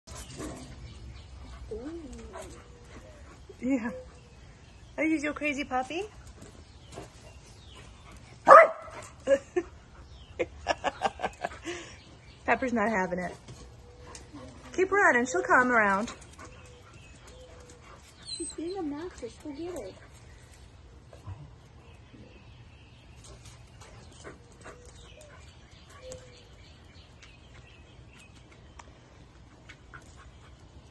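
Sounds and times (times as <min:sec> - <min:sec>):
dog whining: 0:01.7 - 0:04.2
dog barking: 0:08.4 - 0:09.0.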